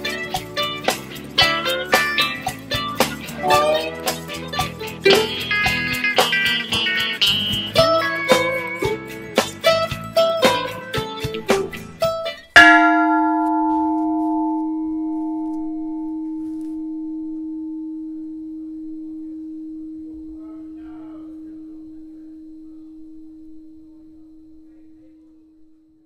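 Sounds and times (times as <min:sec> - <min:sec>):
guitar music: 0:00.0 - 0:18.6
bell-like note ringing: 0:03.4 - 0:04.2, 0:12.6 - 0:25.1.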